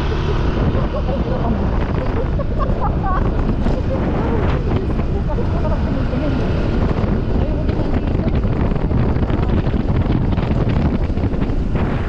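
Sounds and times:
motorcycle engine cruising: 0.0s - 12.0s
wind buffeting microphone: 0.0s - 12.0s.

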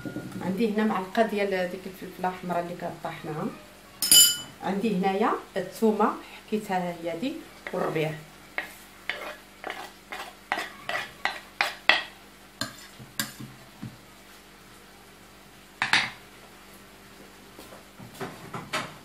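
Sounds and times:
knife scraping wooden cutting board: 8.6s - 11.8s.

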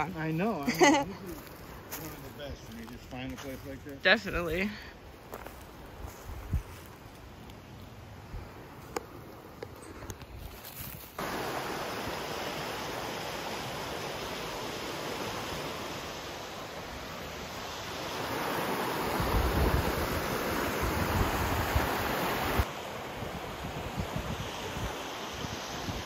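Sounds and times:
wind buffeting microphone: 5.9s - 6.9s, 19.0s - 22.6s.

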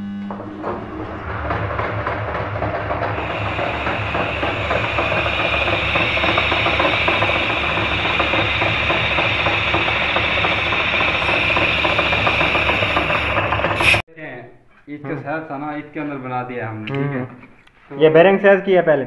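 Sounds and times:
lathe tool cutting whine: 0.0s - 14.0s
machine running hum: 0.0s - 14.0s.

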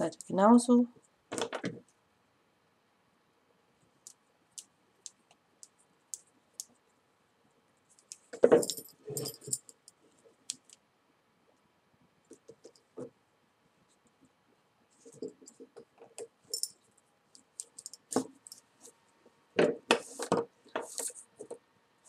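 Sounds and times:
beads clicking and jingling: 8.0s - 9.8s, 16.5s - 16.8s, 17.4s - 18.7s
rattling and rustling: 8.4s - 9.6s.

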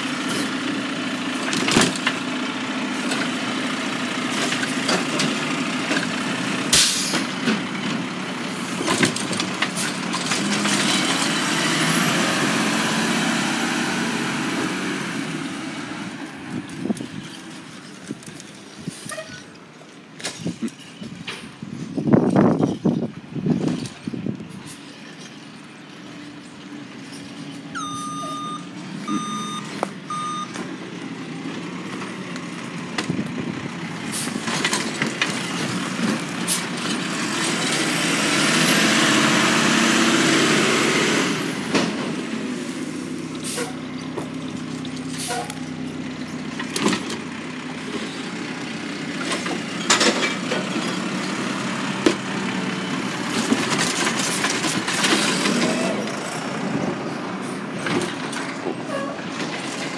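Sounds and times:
diesel engine running: 0.0s - 18.9s, 26.0s - 59.9s
air brakes hissing: 6.7s - 7.2s, 43.4s - 43.8s
backup alarm beeps: 27.8s - 30.6s.

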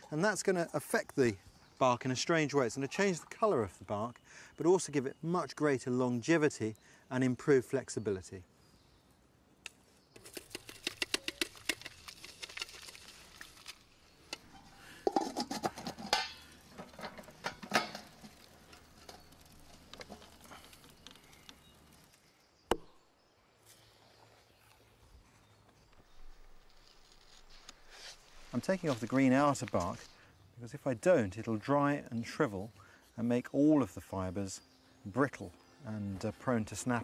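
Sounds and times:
ashes scraping: 10.2s - 22.2s
metal pot clinking: 14.4s - 19.4s.

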